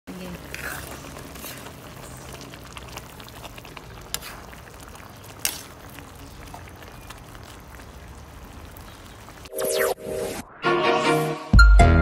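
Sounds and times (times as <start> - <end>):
sauce simmering and bubbling: 0.1 - 9.5.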